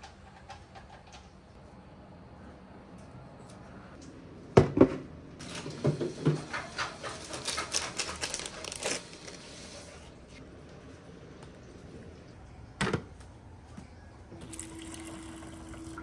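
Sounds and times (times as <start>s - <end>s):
foil sachet crinkling and tearing: 7.2s - 9.6s.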